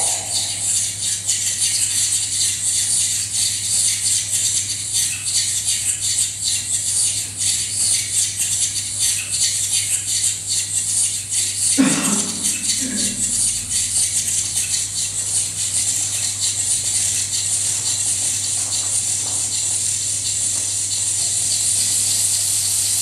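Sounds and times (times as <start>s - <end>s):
steady low hum: 0.0s - 2.1s, 11.7s - 18.2s
high-pitched shaker-like rattling: 0.0s - 23.0s.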